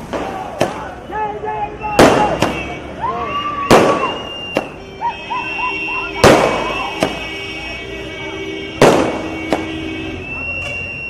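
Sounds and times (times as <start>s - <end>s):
firecrackers banging: 0.0s - 11.0s
whistle-like tones: 1.7s - 7.8s, 9.2s - 11.0s.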